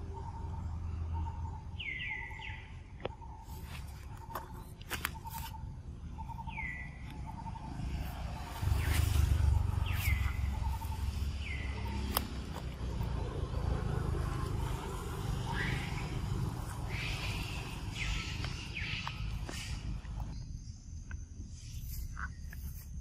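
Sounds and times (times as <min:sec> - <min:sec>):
birds calling: 0:00.0 - 0:23.0
rapidly pulsed bird notes: 0:00.0 - 0:23.0
sharp clicks: 0:11.9 - 0:13.1.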